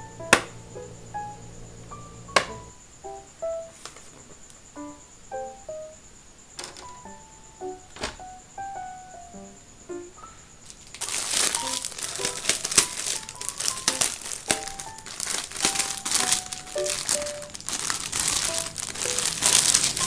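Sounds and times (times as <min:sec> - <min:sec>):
plastic wrapping crinkling: 0:10.6 - 0:20.0.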